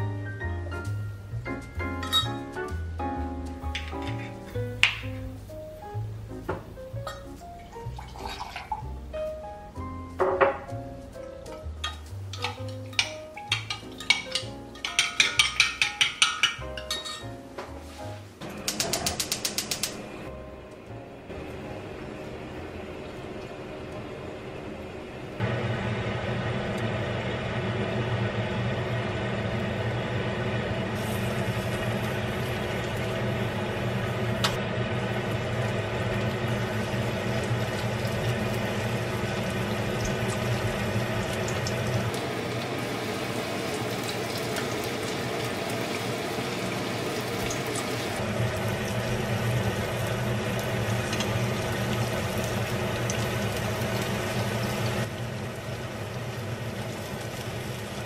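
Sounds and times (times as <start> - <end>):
oil bubbling and sizzling: 0.0 - 58.0
steady low hum: 20.0 - 42.6.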